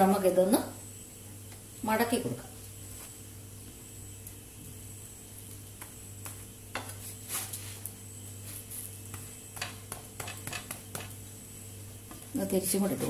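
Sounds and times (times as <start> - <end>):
faint sizzle: 0.0 - 13.0
low steady hum: 0.0 - 13.0
spatula scraping a griddle: 6.8 - 7.8.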